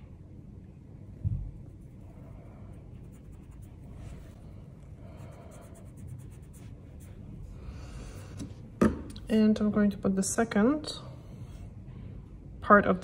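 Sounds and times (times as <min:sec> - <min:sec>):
steady low hum: 0:00.0 - 0:13.0
scratchy rubbing of nail work: 0:01.6 - 0:04.4, 0:05.2 - 0:07.4.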